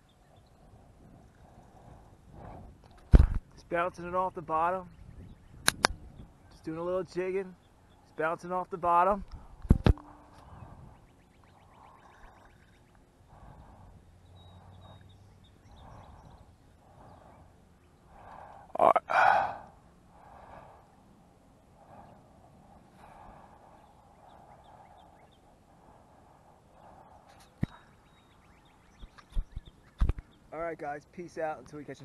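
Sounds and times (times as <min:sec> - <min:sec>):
person breathing through nose: 0:13.3 - 0:21.0.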